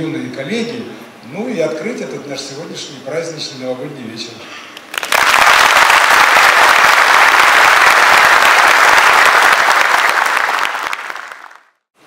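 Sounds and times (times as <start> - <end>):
audience applauding: 4.9 - 11.8.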